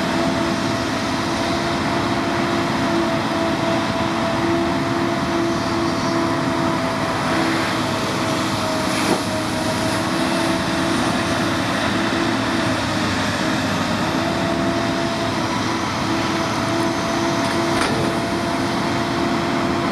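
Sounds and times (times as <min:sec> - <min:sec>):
excavator engine running: 0:00.0 - 0:19.9.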